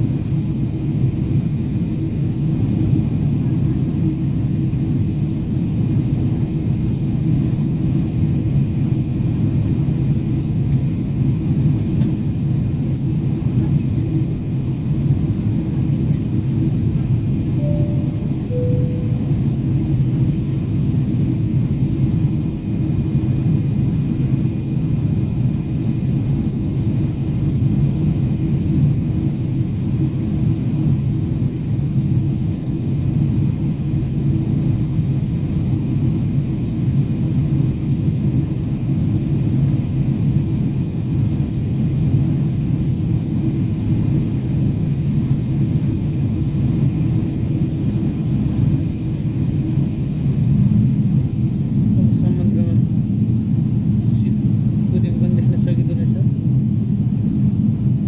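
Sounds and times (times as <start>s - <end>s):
faint steady hums: 0.0s - 58.0s
jet engines and airflow rumble: 0.0s - 58.0s.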